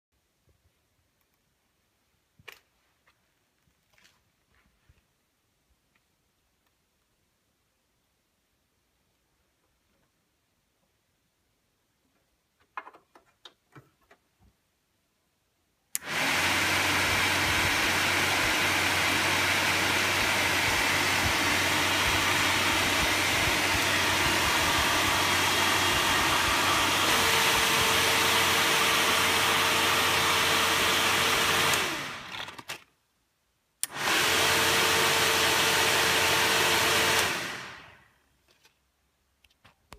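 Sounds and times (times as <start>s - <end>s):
electric cooling fan running: 16.0s - 32.4s.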